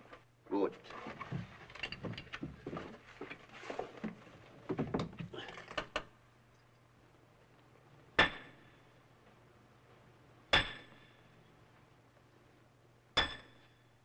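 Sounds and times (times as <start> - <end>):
hammer striking metal: 8.2 - 8.7, 10.5 - 11.2, 13.2 - 13.8.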